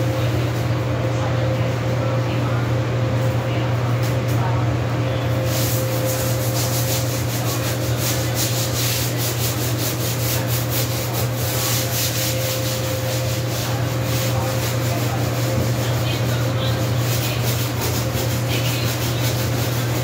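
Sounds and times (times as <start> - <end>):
steady low hum: 0.0 - 20.0
floor being scrubbed by hand: 5.3 - 20.0.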